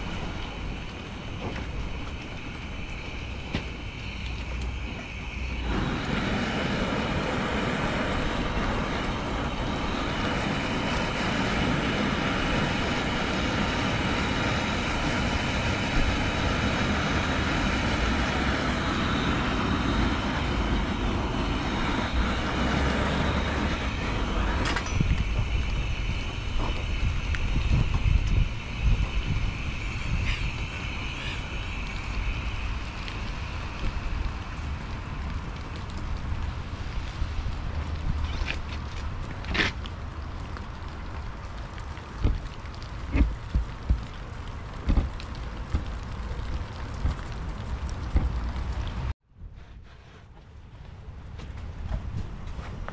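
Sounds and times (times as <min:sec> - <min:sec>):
gas burner rushing: 0:00.0 - 0:35.7.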